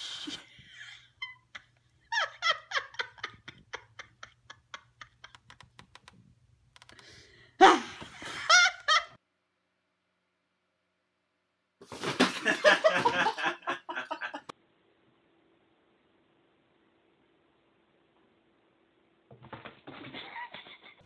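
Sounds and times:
woman laughing: 0:00.7 - 0:05.5, 0:08.2 - 0:09.2, 0:12.4 - 0:14.5, 0:20.1 - 0:21.0.

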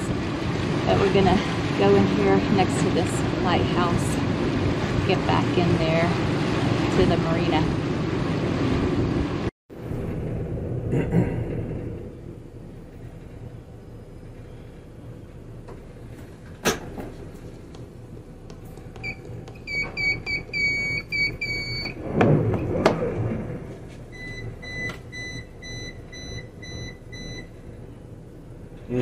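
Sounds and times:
boat engines humming: 0:00.0 - 0:10.8, 0:11.8 - 0:22.1
electronic beeps: 0:19.0 - 0:22.0.

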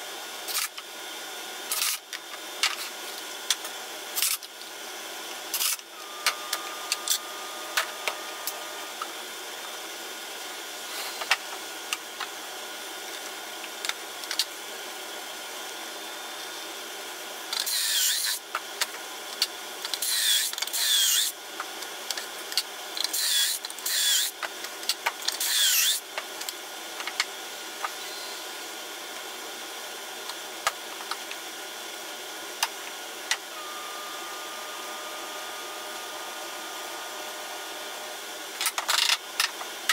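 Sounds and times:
cordless drill boring wood: 0:17.6 - 0:18.4, 0:20.0 - 0:21.4, 0:23.0 - 0:24.4, 0:25.3 - 0:26.1.

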